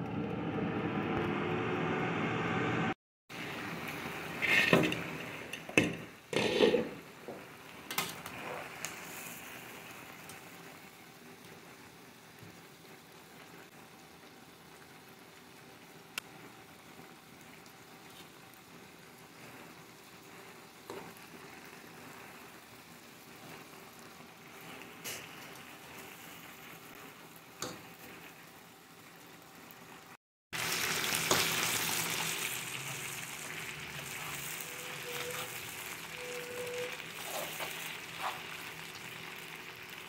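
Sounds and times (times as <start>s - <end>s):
food bubbling and sizzling in pan: 3.3s - 40.0s
metal lid clanking: 4.4s - 7.0s.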